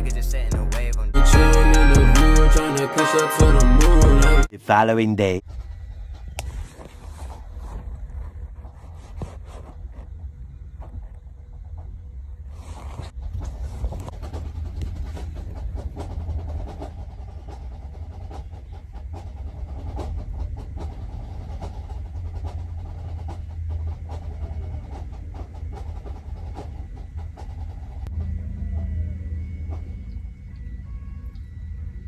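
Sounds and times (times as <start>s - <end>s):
vehicle engine and road rumble: 5.8s - 32.0s
rattles and knocks: 13.2s - 30.6s.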